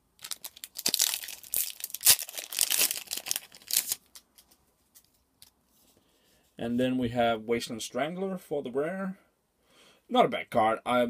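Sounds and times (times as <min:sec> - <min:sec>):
foil wrapper tearing and crinkling: 0:00.2 - 0:04.2
cards rustling: 0:00.2 - 0:05.2.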